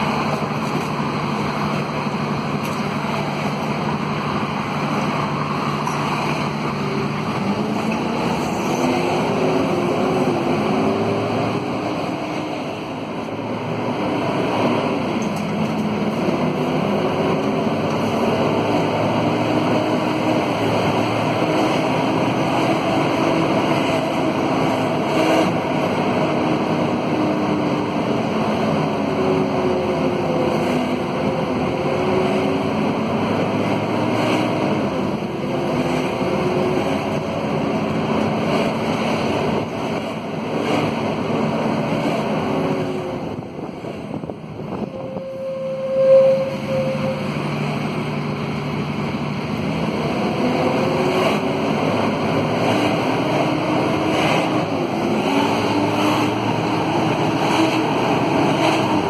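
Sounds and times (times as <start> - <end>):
bus diesel engine running: 0.0 - 59.0
steady whine: 28.9 - 59.0
driveline whine: 44.6 - 50.0.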